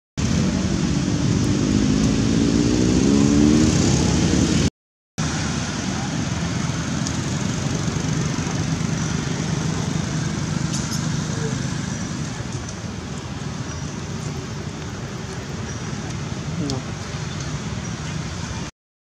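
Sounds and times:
outdoor background noise: 0.2s - 18.7s
motor engine humming: 5.2s - 18.7s.

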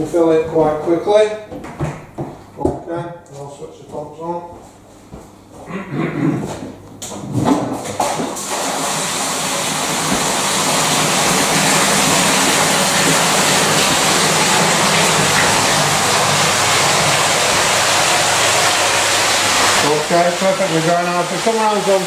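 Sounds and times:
low pump hum: 7.1s - 22.0s
water gushing into tank: 7.9s - 22.0s.

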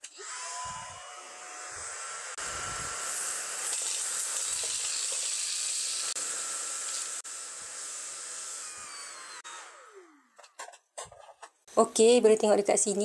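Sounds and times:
stick vacuum running: 0.0s - 10.4s.

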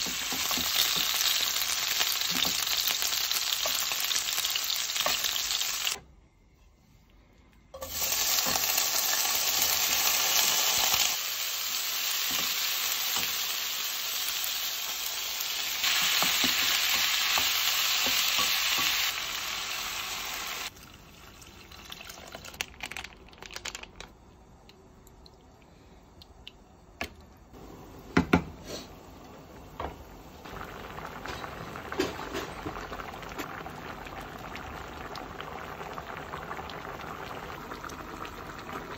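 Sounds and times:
chicken and onions sizzling in pan: 0.0s - 6.0s, 7.8s - 20.7s
water poured into pan: 20.7s - 23.0s.

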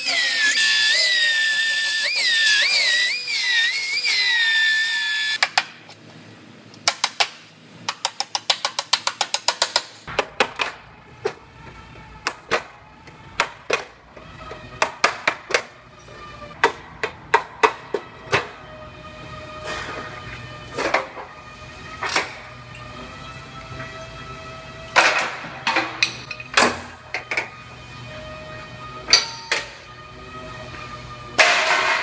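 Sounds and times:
belt sander whine: 0.0s - 5.4s, 17.8s - 25.7s.

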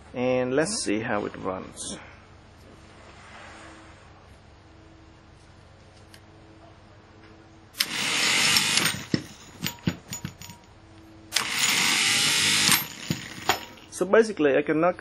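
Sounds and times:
electric motor whirring: 7.8s - 9.2s, 11.3s - 13.9s
motor clicking as it stops: 7.8s - 9.2s, 11.3s - 13.8s.

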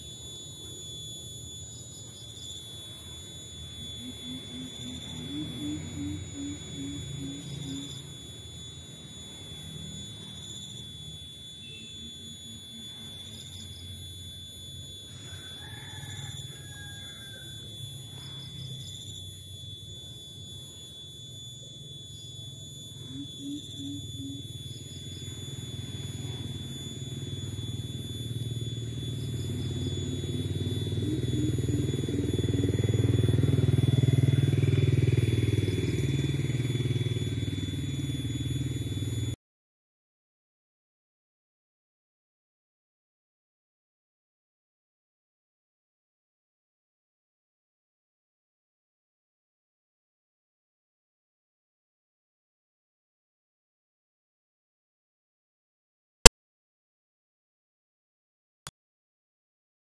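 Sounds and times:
high-pitched whine: 0.0s - 39.4s
bird hooting deeply: 2.8s - 8.6s, 15.1s - 18.9s, 23.0s - 39.3s.

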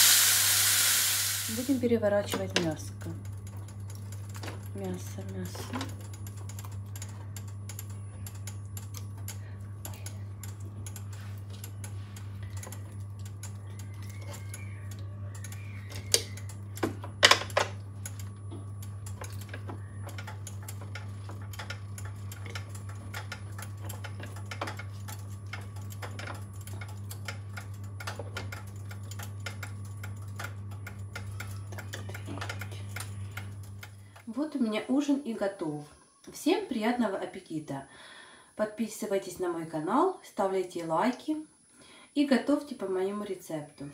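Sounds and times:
meat sizzling on grill: 0.0s - 1.8s
steady low hum: 0.0s - 43.0s.

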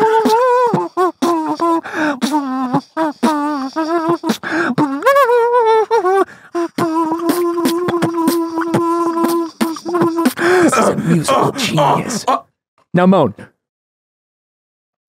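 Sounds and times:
kazoo buzzing tune: 0.0s - 10.7s.

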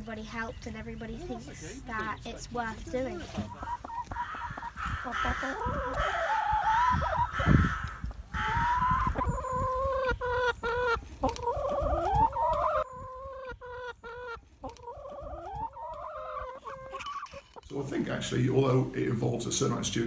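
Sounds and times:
hens clucking: 0.2s - 20.0s.

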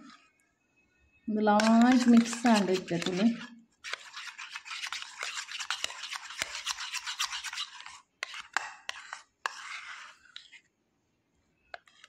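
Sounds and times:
spoon scraping paste in bowl: 1.3s - 10.7s, 11.7s - 12.0s.

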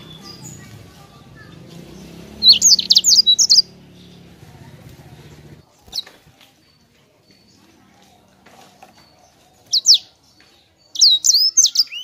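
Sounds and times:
bird singing high sweeping notes: 1.4s - 4.4s.

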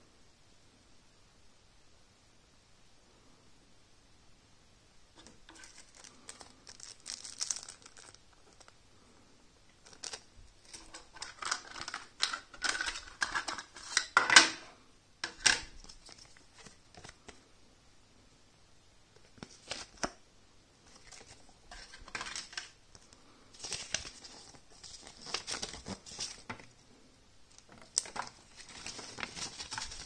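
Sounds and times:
plastic bag crinkling: 5.2s - 8.8s, 9.7s - 14.2s, 27.5s - 30.0s.

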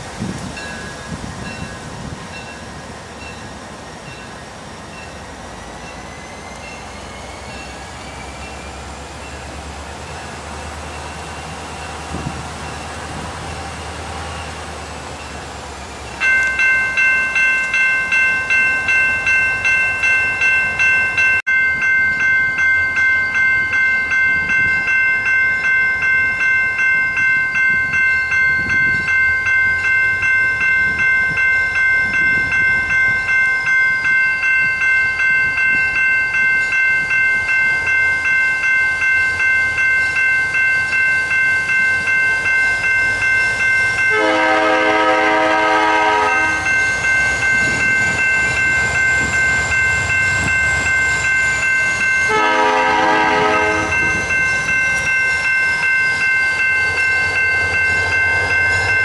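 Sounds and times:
crossing bell ringing: 0.5s - 59.0s
locomotive horn: 44.1s - 46.8s, 52.3s - 54.2s.

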